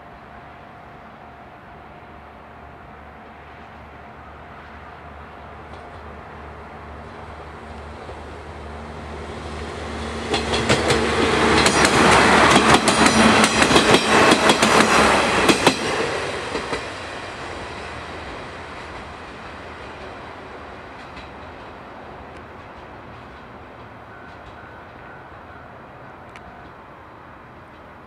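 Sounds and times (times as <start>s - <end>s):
diesel train engine drone: 0.0s - 28.0s
train wheels clacking over rail joints: 10.0s - 17.1s, 18.2s - 25.2s.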